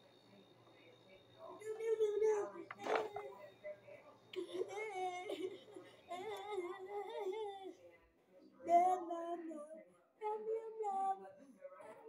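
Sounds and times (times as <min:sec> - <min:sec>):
child singing: 0:06.1 - 0:07.8, 0:08.7 - 0:12.0.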